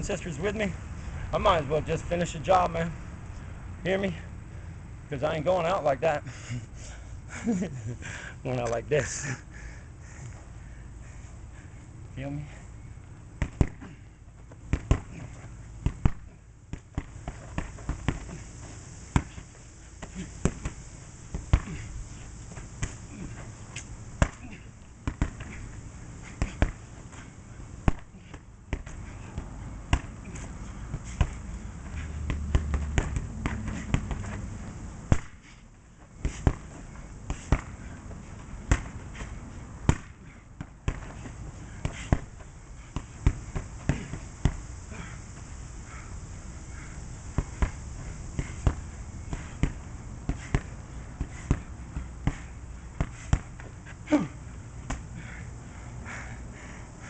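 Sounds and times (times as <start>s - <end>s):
punches thudding on punching bag: 13.4s - 18.4s, 19.1s - 22.0s, 22.6s - 23.4s, 24.1s - 35.6s, 36.2s - 45.1s, 47.3s - 55.3s.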